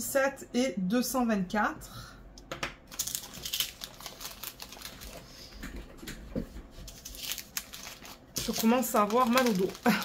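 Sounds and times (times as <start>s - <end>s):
plastic bags rustling: 2.9s - 5.6s, 6.8s - 10.0s.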